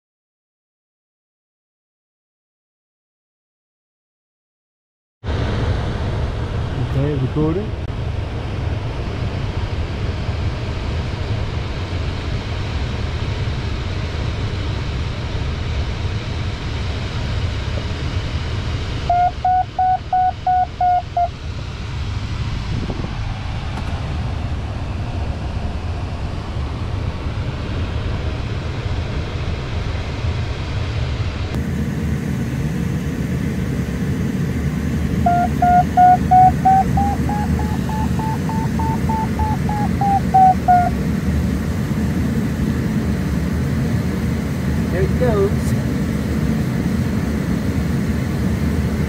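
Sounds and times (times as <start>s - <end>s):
airflow noise in cockpit: 5.2s - 49.0s
quick electronic beeps: 19.1s - 21.3s, 35.3s - 40.9s.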